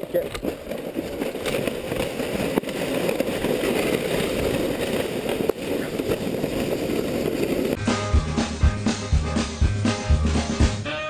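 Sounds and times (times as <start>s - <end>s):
sled knocks: 0.0s - 7.8s
sled scraping on snow: 0.0s - 7.8s.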